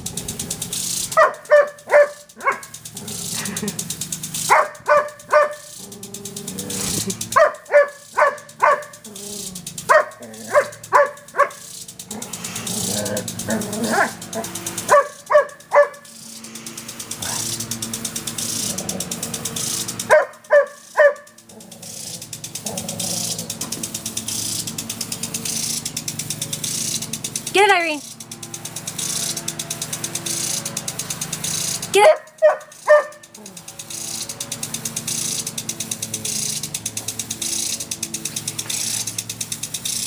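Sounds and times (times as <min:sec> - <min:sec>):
impact sprinkler ticking: 0:00.0 - 0:40.0
water jet hissing: 0:00.0 - 0:40.0
dog barking: 0:01.1 - 0:02.8, 0:04.4 - 0:05.7, 0:07.3 - 0:09.1, 0:09.8 - 0:11.7, 0:13.8 - 0:14.2, 0:14.8 - 0:16.1, 0:17.2 - 0:17.5, 0:20.1 - 0:21.4, 0:32.0 - 0:33.3.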